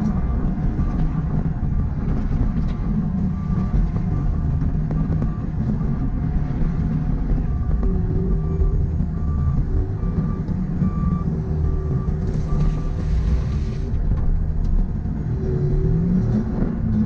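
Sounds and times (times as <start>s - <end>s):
diesel engine under load: 0.0s - 17.0s
backup alarm beeping: 7.4s - 13.6s.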